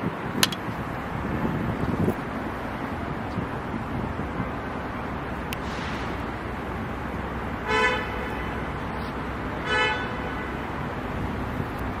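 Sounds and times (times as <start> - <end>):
street noise: 0.0 - 12.0
vehicle horn toots: 7.7 - 8.5, 9.6 - 10.6.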